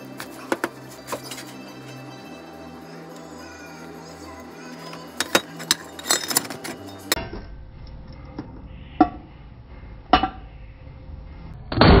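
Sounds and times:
low steady hum: 0:00.8 - 0:11.8.

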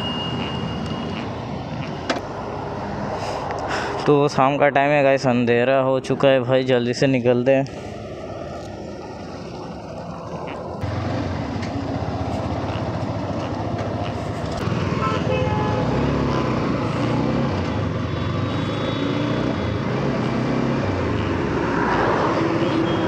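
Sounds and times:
road traffic: 0:00.0 - 0:23.0
motorcycle engine accelerating: 0:09.2 - 0:15.1, 0:15.8 - 0:22.6.

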